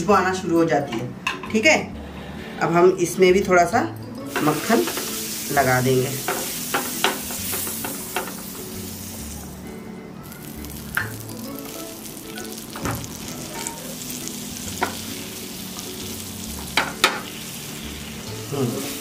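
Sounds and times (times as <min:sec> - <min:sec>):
butter sizzling on a hot pan: 0:04.3 - 0:09.6, 0:10.2 - 0:19.0.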